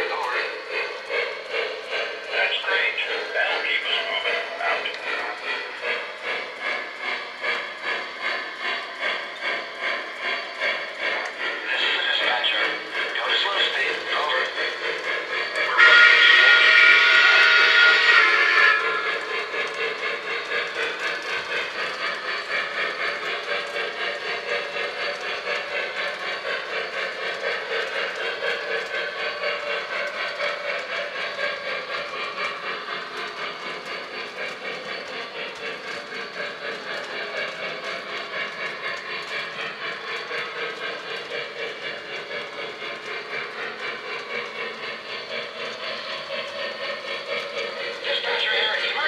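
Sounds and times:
steam locomotive chuffing: 0.0 - 49.0.

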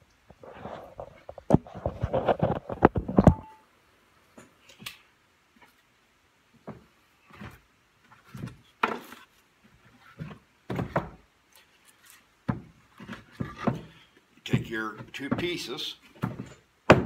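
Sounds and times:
wooden boards knocking together: 15.0 - 17.0.

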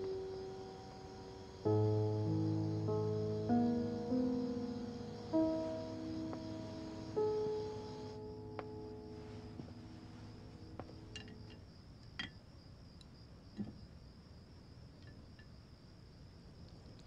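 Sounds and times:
background music: 0.0 - 11.2
crickets chirring: 0.0 - 17.0.

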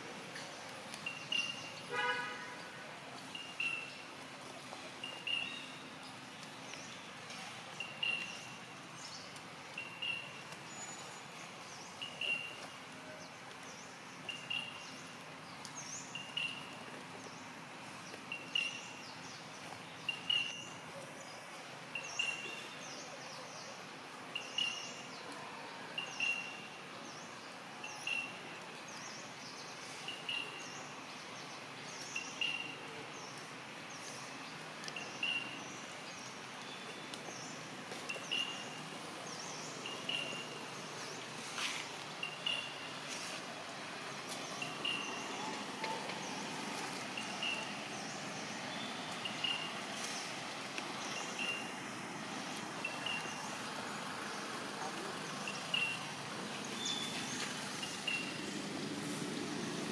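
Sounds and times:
forest background hiss: 0.0 - 59.9
faint high chirps: 1.0 - 2.1, 5.0 - 6.1, 7.7 - 8.6, 9.7 - 11.1, 11.9 - 12.8, 24.3 - 26.8, 27.8 - 28.4, 34.8 - 35.6, 38.1 - 39.0, 39.7 - 41.0, 44.6 - 46.1, 47.2 - 47.8, 48.7 - 50.1, 51.1 - 51.8, 52.8 - 53.6.

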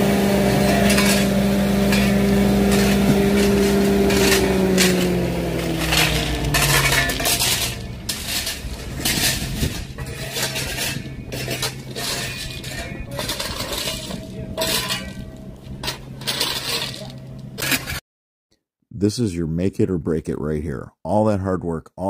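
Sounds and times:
shovels scraping stones: 0.4 - 18.0.

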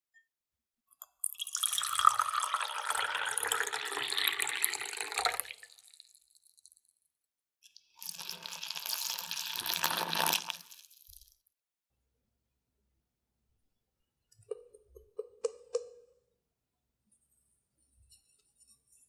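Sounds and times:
water pouring into a glass mug: 1.0 - 6.8, 7.7 - 11.3
water pouring onto flour: 1.3 - 6.8, 8.0 - 11.4.

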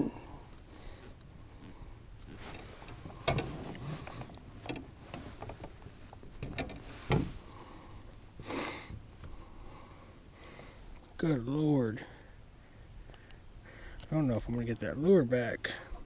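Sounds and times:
heavy breath: 7.4 - 10.9, 12.0 - 14.0.

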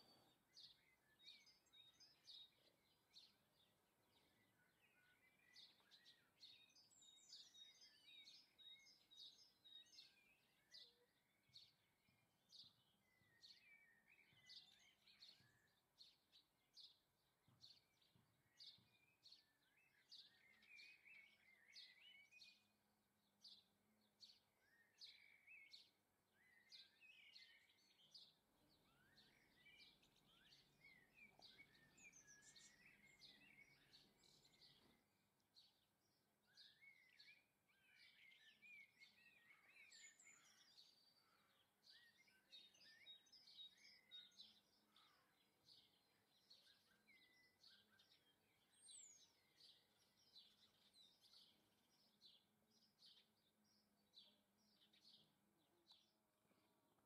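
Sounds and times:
songbirds chirping: 0.0 - 57.0.

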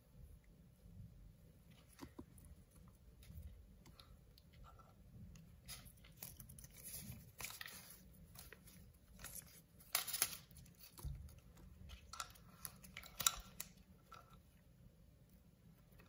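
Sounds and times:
paper crinkling: 5.6 - 13.8.

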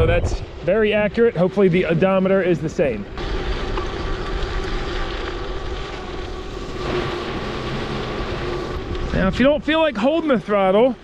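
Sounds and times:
wind rush on microphone: 0.0 - 0.8
tyre noise on dirt path: 0.0 - 10.7.

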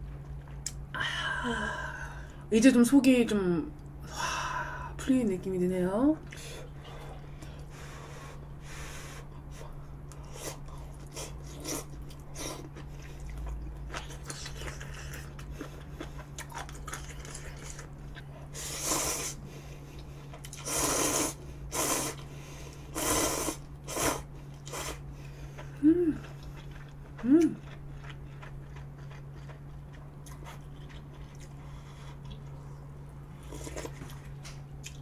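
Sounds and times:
person chewing food: 9.4 - 35.0
slurping noodles: 18.6 - 19.4, 20.5 - 22.2, 22.9 - 25.0.

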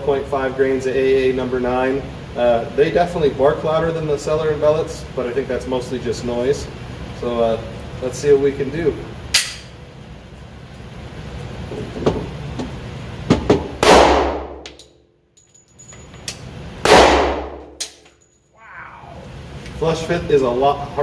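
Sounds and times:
pistol shots ringing out: 13.8 - 14.6, 16.8 - 18.0.

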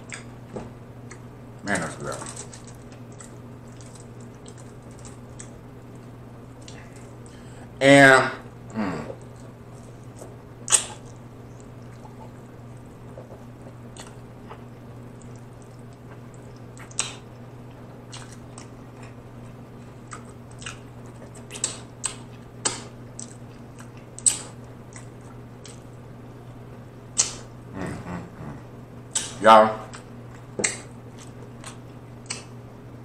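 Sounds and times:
steady low hum: 0.0 - 33.0
chewing and biting meat: 9.2 - 26.0
wet mouth smacks: 10.7 - 11.2, 27.2 - 27.5, 29.1 - 30.0, 31.7 - 32.5.

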